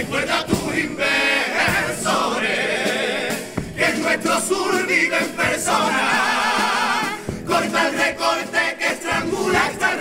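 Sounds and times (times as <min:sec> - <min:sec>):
choir singing in harmony: 0:00.0 - 0:10.0
drum strokes: 0:00.0 - 0:10.0
guitar accompaniment: 0:01.6 - 0:10.0.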